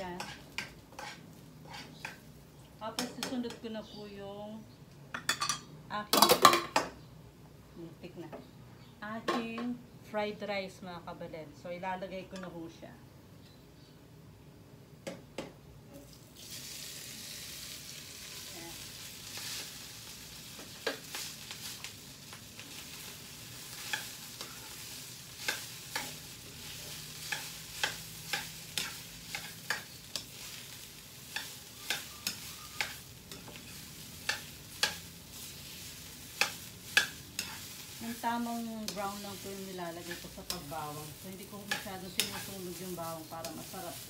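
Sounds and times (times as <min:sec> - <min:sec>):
metal spatula scraping a pan: 0:00.0 - 0:02.3, 0:22.7 - 0:44.0
rice sizzling in oil: 0:00.0 - 0:03.2, 0:16.0 - 0:44.0.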